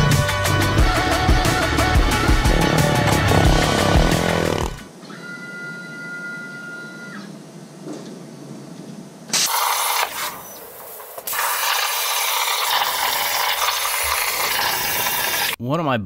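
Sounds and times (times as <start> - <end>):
plasma torch arc hissing: 9.3 - 15.6.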